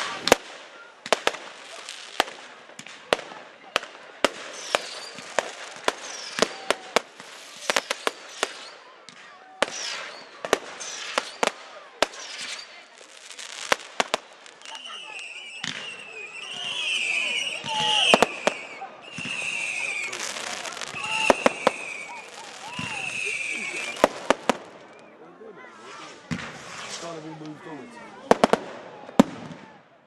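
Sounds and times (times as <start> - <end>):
firework bangs: 0.0 - 25.1, 25.7 - 29.8
firework hiss: 4.4 - 8.8, 9.6 - 24.9, 25.7 - 28.6.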